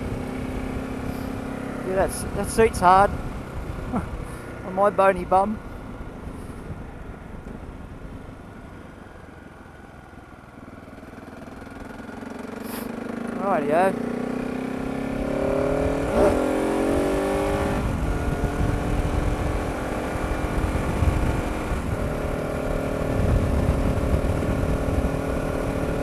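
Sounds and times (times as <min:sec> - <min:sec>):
motorcycle engine accelerating: 0:00.0 - 0:08.2, 0:10.4 - 0:26.0
wind rumble on microphone: 0:15.1 - 0:26.0.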